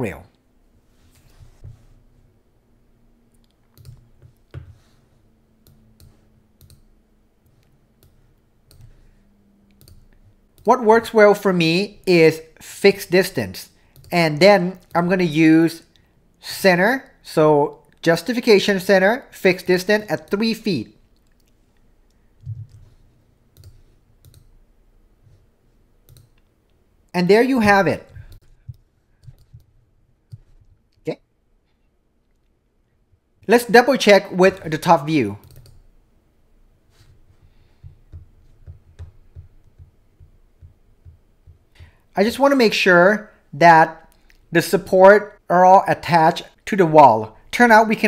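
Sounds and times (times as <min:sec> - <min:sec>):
computer mouse clicks: 0:03.3 - 0:04.8, 0:05.6 - 0:09.0, 0:09.7 - 0:10.7, 0:13.9 - 0:14.2, 0:21.2 - 0:24.6, 0:26.0 - 0:26.8, 0:28.1 - 0:29.7, 0:35.4 - 0:35.8.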